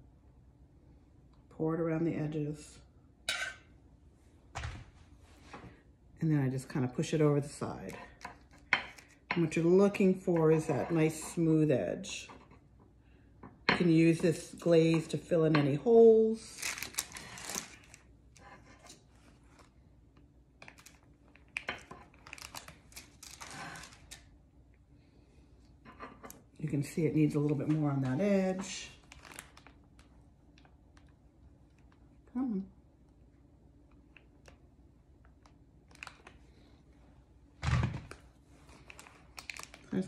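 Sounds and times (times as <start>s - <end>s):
wax paper rustling: 16.4s - 18.0s, 27.4s - 30.2s.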